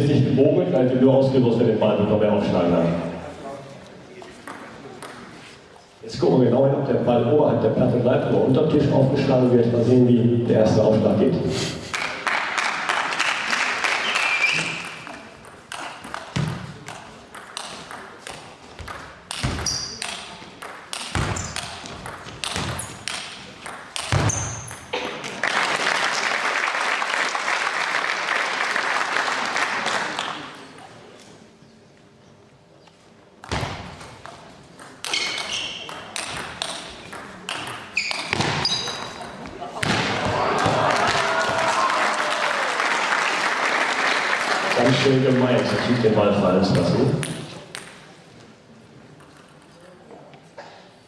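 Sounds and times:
table tennis ball clicking: 14.8 - 24.8, 34.2 - 39.4.

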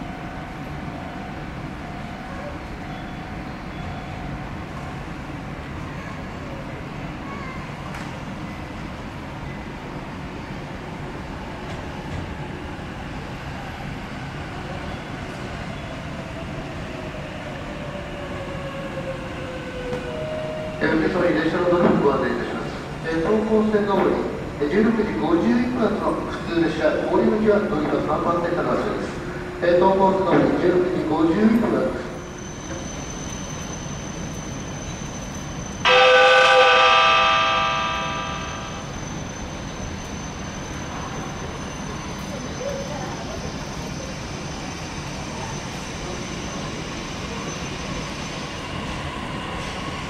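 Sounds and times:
train wheels rumbling on rail: 0.0 - 50.0
train horn blast: 35.9 - 38.8.

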